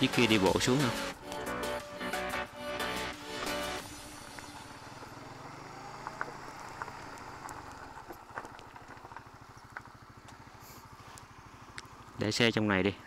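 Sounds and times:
music: 0:00.0 - 0:04.8
small motorbike engine: 0:00.0 - 0:13.0.

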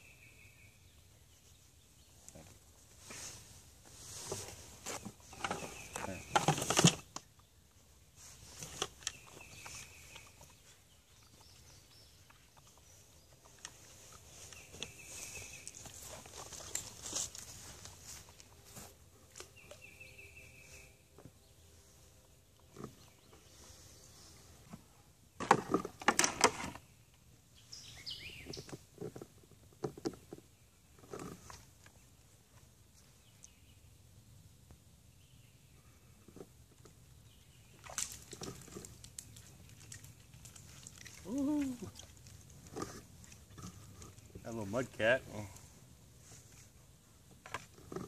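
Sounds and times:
rustling and clicks of gear: 0:02.2 - 0:07.5, 0:08.3 - 0:19.9.

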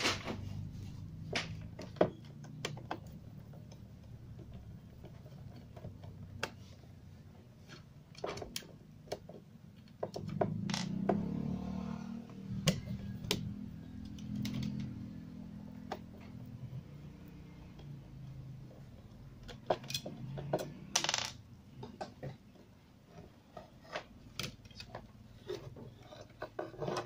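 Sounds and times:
rubbing and scraping: 0:00.0 - 0:01.8, 0:23.0 - 0:27.0.

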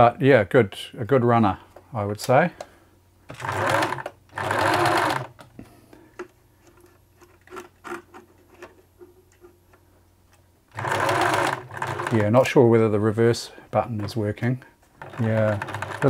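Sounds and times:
faint steady hum: 0:00.0 - 0:16.0
sewing machine running: 0:03.3 - 0:05.3, 0:10.7 - 0:12.4, 0:15.0 - 0:16.0.

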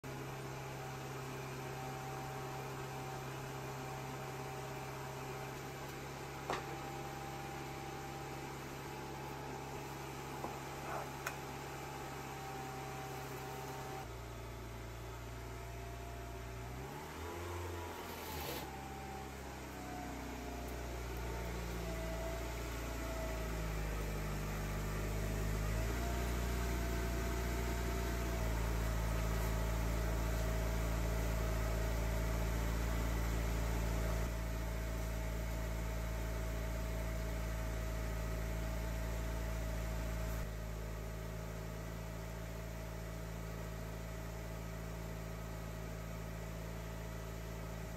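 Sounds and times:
car engine running at low revs: 0:00.0 - 0:47.9.

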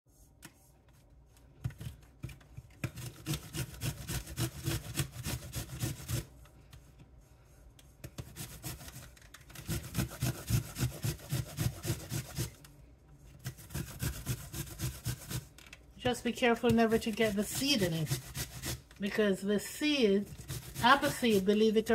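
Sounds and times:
apple grated on metal grater: 0:02.8 - 0:06.3, 0:08.2 - 0:12.6, 0:13.4 - 0:15.6, 0:16.6 - 0:18.9, 0:20.2 - 0:21.9.

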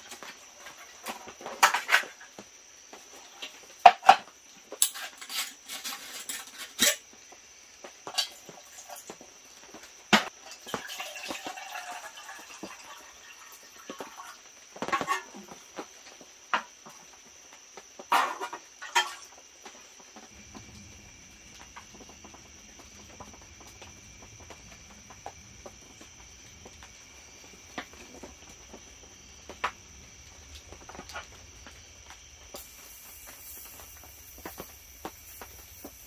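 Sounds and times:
faint high whine: 0:20.2 - 0:36.0.

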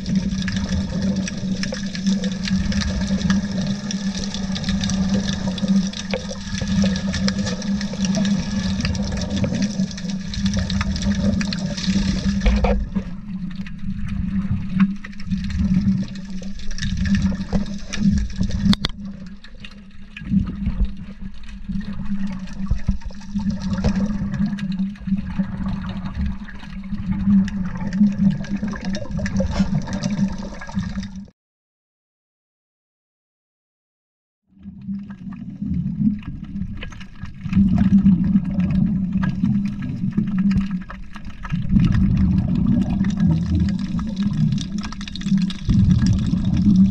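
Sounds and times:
underwater air bubbling: 0:00.0 - 0:31.3, 0:34.6 - 0:46.9.

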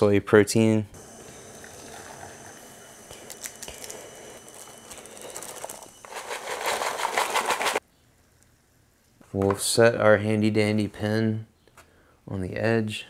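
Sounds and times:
foil packet crinkling and tearing: 0:03.2 - 0:07.8.

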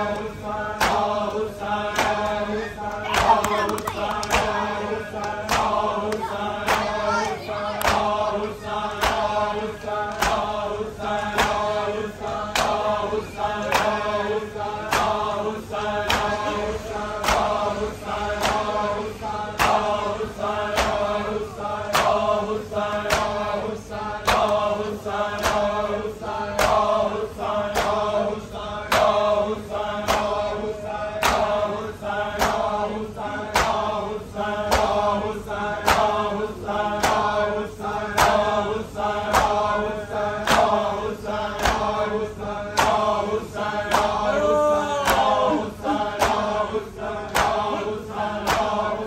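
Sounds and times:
group chanting in unison: 0:00.0 - 0:49.0.

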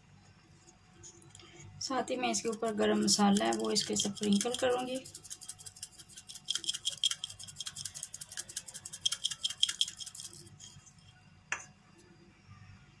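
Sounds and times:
spice shaker rattling: 0:02.1 - 0:11.2.

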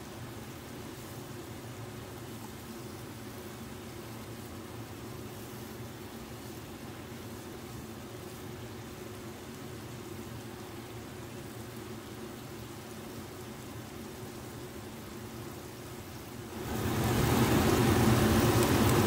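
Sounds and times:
food sizzling in a frying pan: 0:00.0 - 0:19.0.

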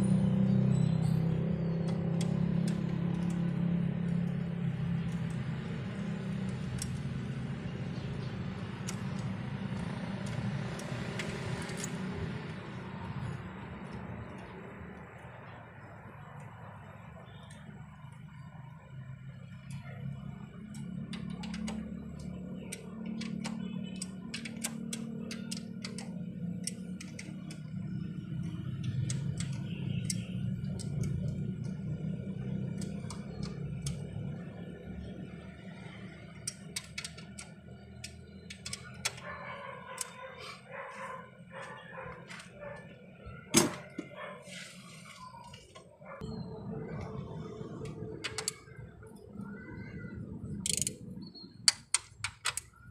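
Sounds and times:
ratchet wrench clicking: 0:50.6 - 0:51.0.

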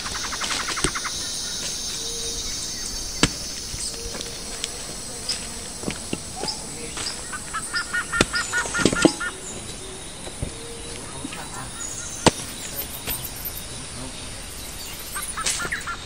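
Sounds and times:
bird calling: 0:00.0 - 0:16.0
axe chopping wood: 0:00.6 - 0:01.8, 0:03.2 - 0:04.3, 0:07.9 - 0:09.4, 0:12.2 - 0:13.2.

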